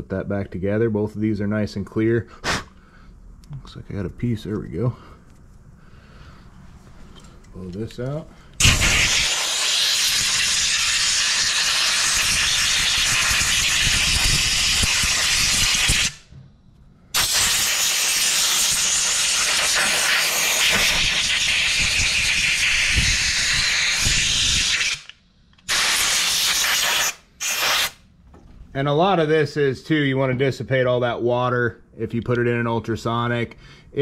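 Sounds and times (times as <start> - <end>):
compressed air blow gun hissing: 8.6 - 16.2, 17.1 - 28.0.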